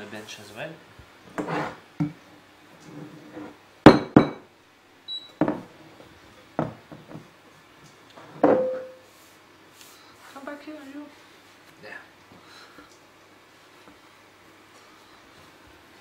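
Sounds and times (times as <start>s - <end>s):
ceramic bowl knocking on wood: 3.9s - 4.4s
bowl ringing: 8.5s - 9.0s.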